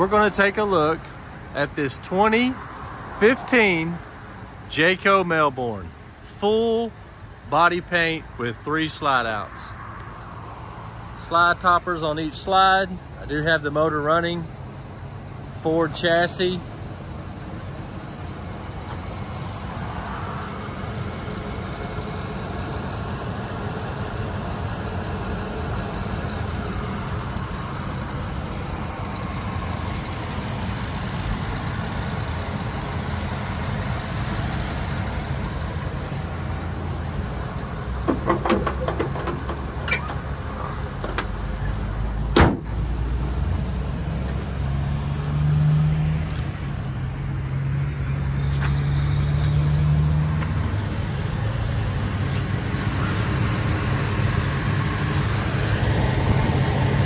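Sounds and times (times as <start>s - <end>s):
engine idling: 12.0s - 42.8s, 50.6s - 57.0s
hood slamming shut: 38.0s - 41.4s, 42.3s - 42.8s
clicks and rattles: 38.1s - 40.2s.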